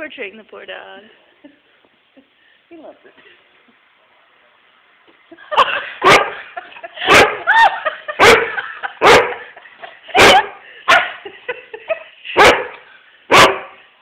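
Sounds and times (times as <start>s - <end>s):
dog barking: 6.0s - 7.5s, 8.2s - 9.5s, 10.2s - 11.2s, 12.4s - 13.8s.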